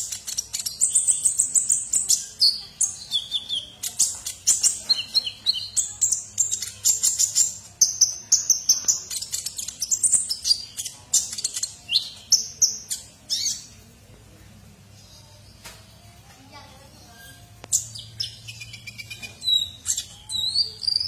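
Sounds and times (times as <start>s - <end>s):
bird singing high sharp chirps: 17.2s - 21.0s.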